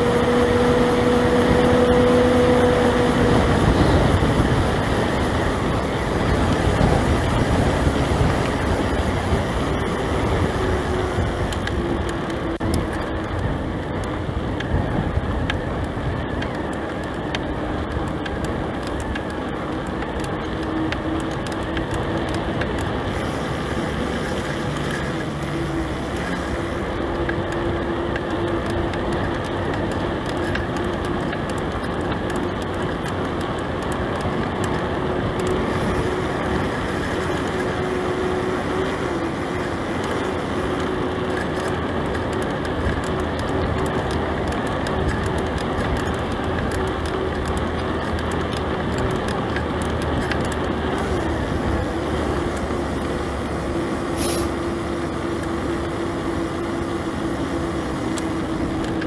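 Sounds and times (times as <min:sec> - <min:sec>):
bike tyre noise: 0:00.0 - 0:59.0
wind on microphone: 0:00.0 - 0:59.0
small rattling clicks: 0:15.4 - 0:53.5.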